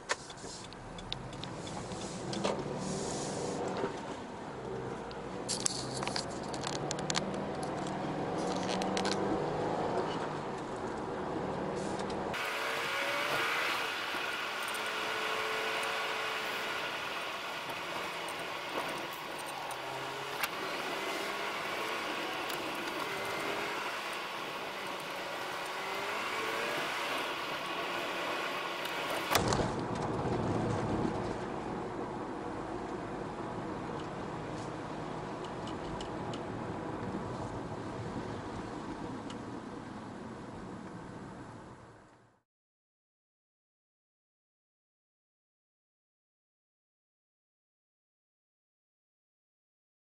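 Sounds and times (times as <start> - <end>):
hissy road noise: 0.0 - 42.2
car engine and tyre noise: 0.0 - 42.4.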